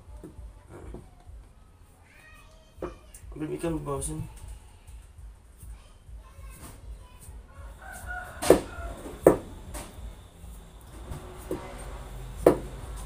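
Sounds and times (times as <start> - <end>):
rooster crowing: 7.5 - 9.9
knife chopping on wooden board: 8.4 - 9.5, 12.4 - 12.8.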